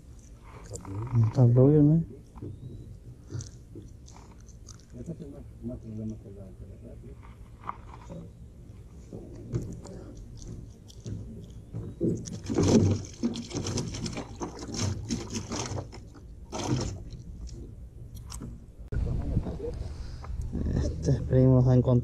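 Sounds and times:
water splashing: 0:08.0 - 0:18.5.

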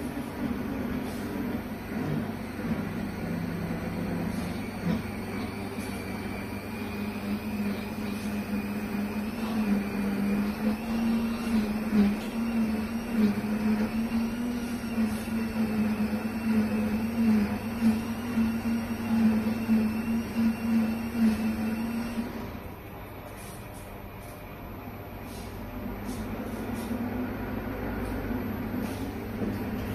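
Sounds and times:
blender motor humming: 0:00.0 - 0:22.7.

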